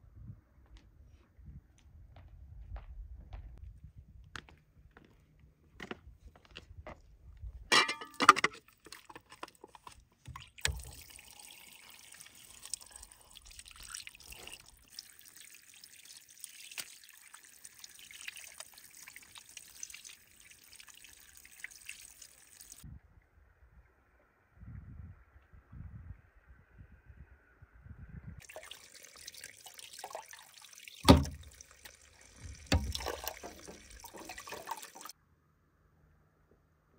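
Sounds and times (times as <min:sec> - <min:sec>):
water splashing and trickling: 0:07.7 - 0:22.8, 0:28.4 - 0:35.2.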